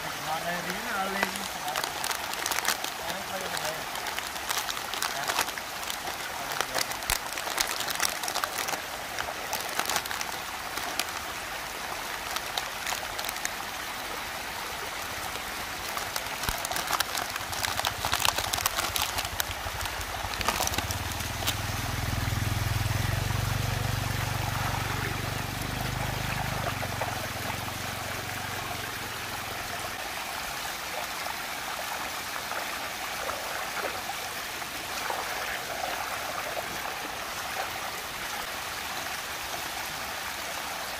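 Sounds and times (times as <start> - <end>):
water rushing down a vortex: 0.0 - 40.9
plastic packaging crinkling: 1.0 - 11.3, 12.0 - 13.6, 15.3 - 22.0.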